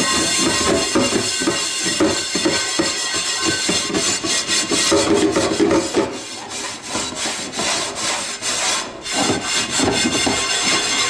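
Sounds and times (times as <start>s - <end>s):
scrubber scouring frying pan: 0.0s - 11.0s.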